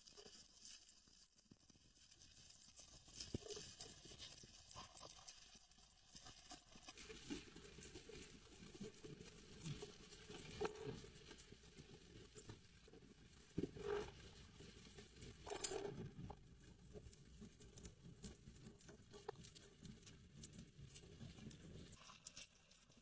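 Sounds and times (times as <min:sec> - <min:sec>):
underwater crackling: 0:13.4 - 0:16.4.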